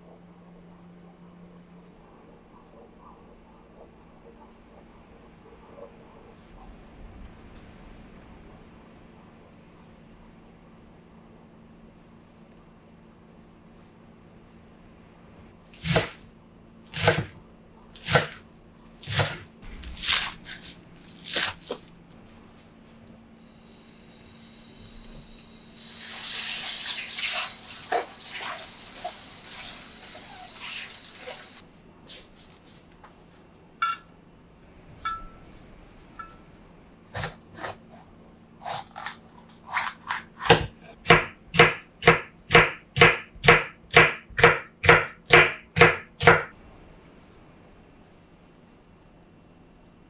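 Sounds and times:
knife chopping on wooden board: 39.7s - 46.5s.

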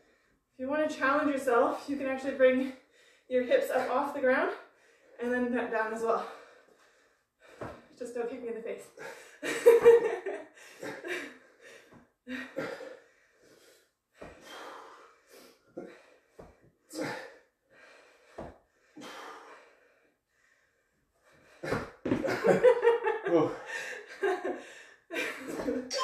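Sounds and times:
heavy breathing: 10.5s - 22.1s.

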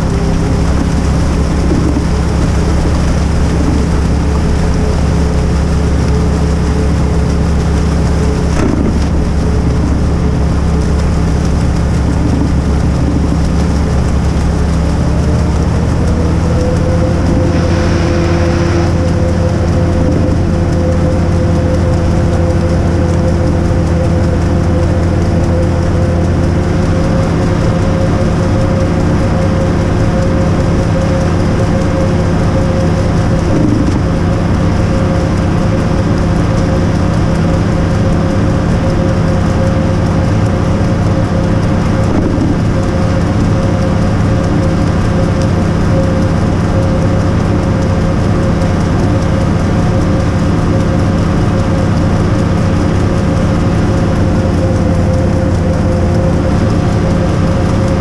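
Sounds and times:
engine running with deep hum: 0.0s - 58.0s.

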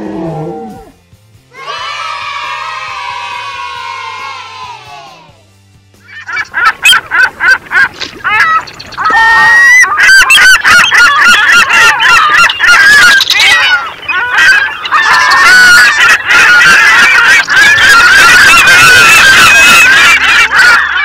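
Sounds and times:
birds honking: 6.1s - 21.0s.

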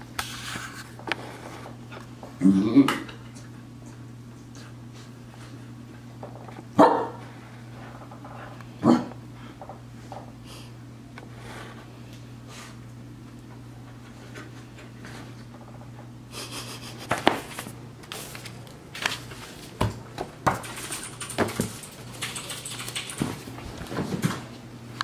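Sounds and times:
notebook pages rustling: 17.4s - 19.7s.

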